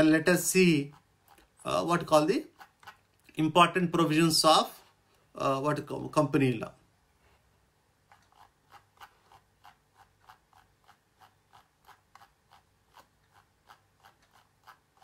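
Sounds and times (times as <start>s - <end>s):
mouse scroll wheel clicking: 0.0s - 3.2s, 8.0s - 15.0s.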